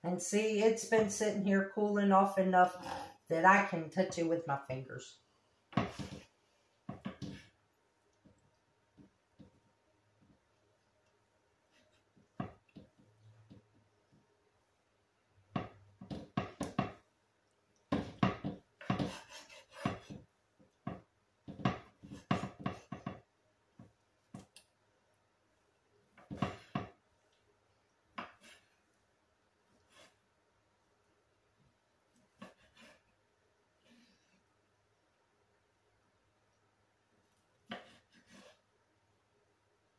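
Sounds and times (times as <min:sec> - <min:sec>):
knife chopping on cutting board: 0:17.9 - 0:20.2.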